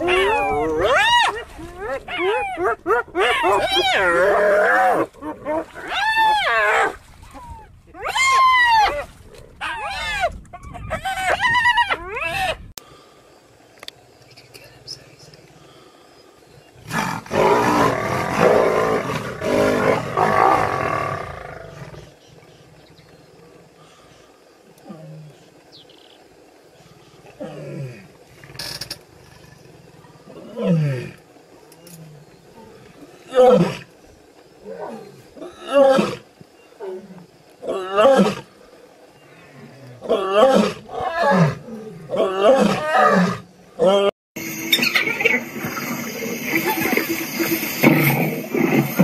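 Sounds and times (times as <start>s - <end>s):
lionesses snarling and growling: 0.0s - 7.5s, 16.8s - 26.0s, 26.7s - 44.1s, 44.7s - 49.0s
big cats snarling and growling: 16.8s - 23.8s, 44.7s - 49.0s.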